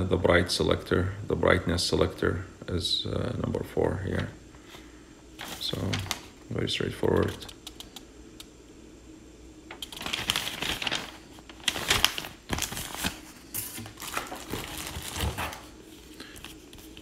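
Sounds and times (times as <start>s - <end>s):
paper and plastic rustling: 5.4s - 6.3s, 9.7s - 17.0s.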